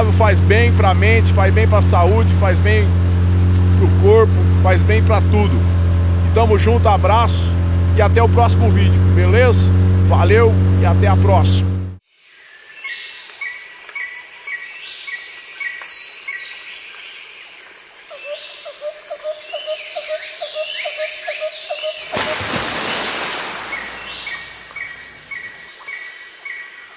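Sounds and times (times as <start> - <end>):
insects chirping: 12.0 - 26.9
birds calling: 12.8 - 26.9.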